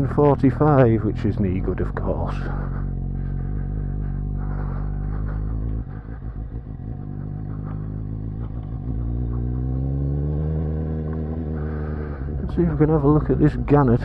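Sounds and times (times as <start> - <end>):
motorcycle engine revving: 0.0 - 14.0.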